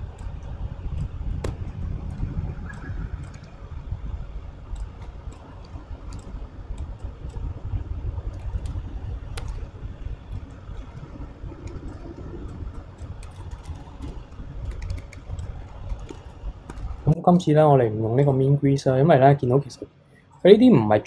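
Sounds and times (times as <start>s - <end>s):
computer mouse clicks: 0.0s - 3.8s, 4.7s - 17.2s
keyboard keys clicking: 0.0s - 3.8s, 4.7s - 17.2s
low background rumble: 0.0s - 21.0s.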